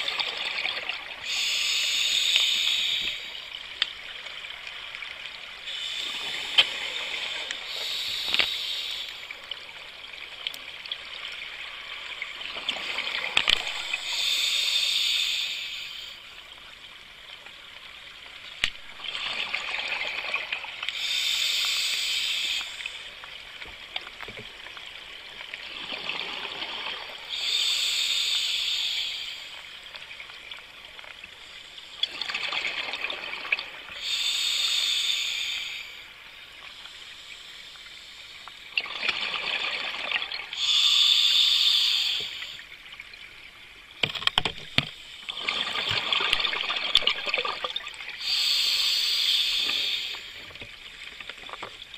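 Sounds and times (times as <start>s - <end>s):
diver breathing through regulator: 1.2s - 3.4s, 5.7s - 9.3s, 13.6s - 16.2s, 20.9s - 23.1s, 27.3s - 29.7s, 34.0s - 36.1s, 40.6s - 42.7s, 48.2s - 50.5s
crackle of clicks: 2.3s - 4.1s, 6.4s - 9.6s, 10.4s - 11.0s, 13.3s - 13.8s, 18.4s - 18.8s, 22.5s - 24.9s, 44.0s - 45.0s, 45.9s - 47.9s, 49.6s - 51.9s.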